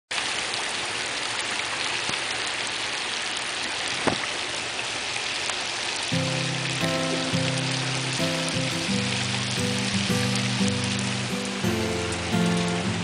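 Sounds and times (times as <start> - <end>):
heavy rain falling on water: 0.1 - 13.0.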